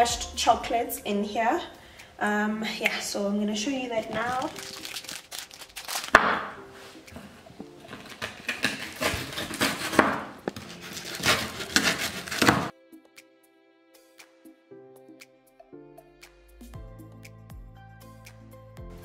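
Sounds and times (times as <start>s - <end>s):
soft background music: 0.0s - 19.0s
knife chopping on wooden board: 6.1s - 6.6s, 7.9s - 12.7s.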